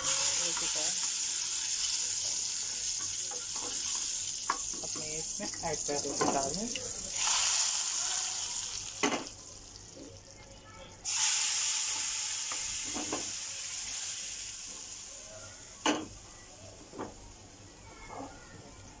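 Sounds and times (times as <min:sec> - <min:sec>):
hot oil sizzling in pan: 0:00.0 - 0:10.0, 0:11.0 - 0:15.8.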